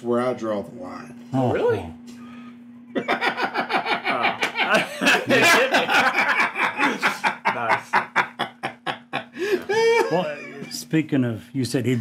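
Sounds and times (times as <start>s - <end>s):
men laughing: 2.9s - 10.9s.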